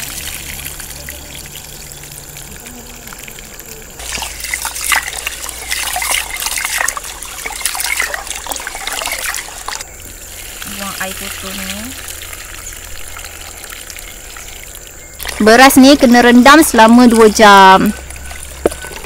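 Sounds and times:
water pouring: 0.0s - 19.0s
water trickling from pot: 0.0s - 19.0s
hand scrubbing wet rice: 4.0s - 12.0s.

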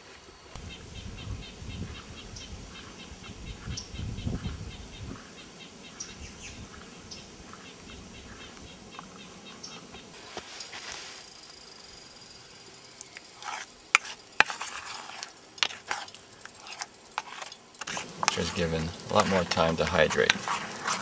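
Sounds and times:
small bird chirping: 0.5s - 10.2s
low rumbling noise: 0.6s - 5.3s.

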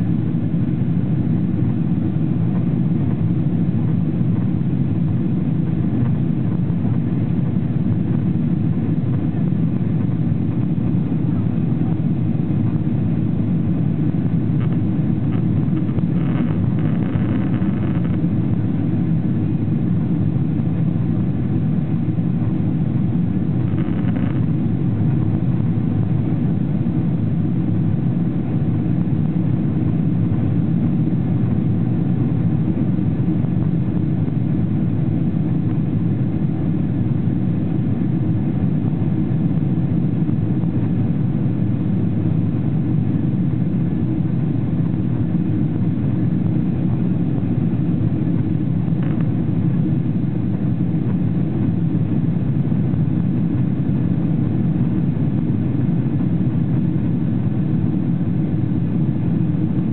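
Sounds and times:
airplane cabin rumble: 0.0s - 59.9s.

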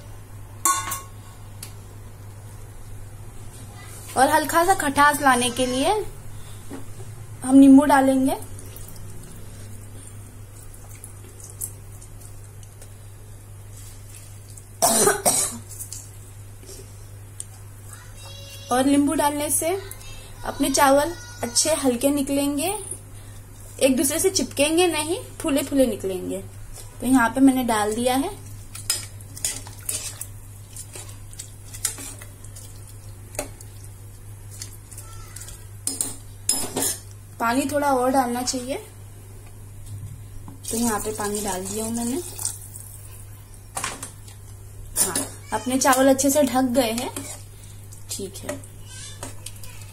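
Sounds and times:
spoon stirring rice in pot: 27.9s - 36.8s, 46.8s - 47.5s
juice dripping into water: 40.6s - 43.2s.

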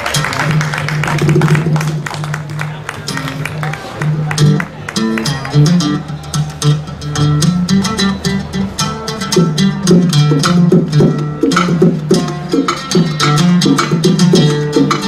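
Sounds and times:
oud plucked melody: 0.0s - 15.0s
bongo drums: 0.2s - 2.4s, 9.2s - 15.0s.

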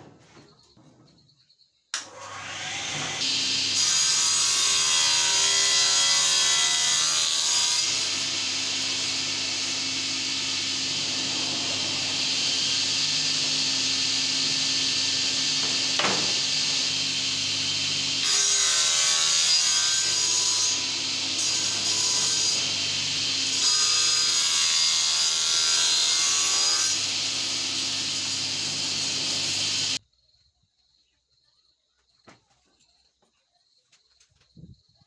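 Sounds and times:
circular saw cutting wood panel: 2.0s - 30.0s.

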